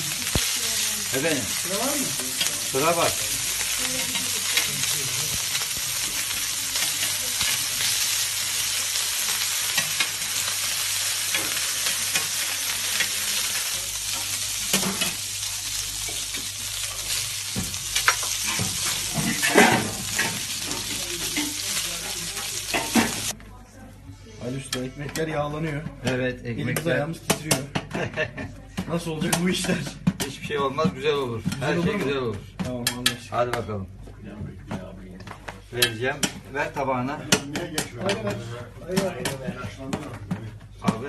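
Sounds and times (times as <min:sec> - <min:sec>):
meat sizzling on a griddle: 0:00.0 - 0:23.3.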